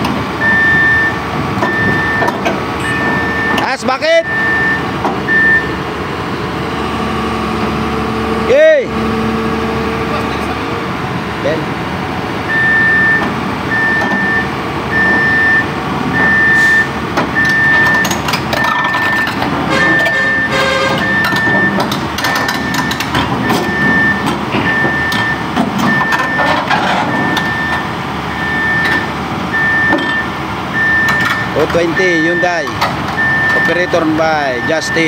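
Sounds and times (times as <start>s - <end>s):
diesel engines running: 0.0s - 35.0s
backup alarm beeping: 0.4s - 5.8s, 12.5s - 35.0s.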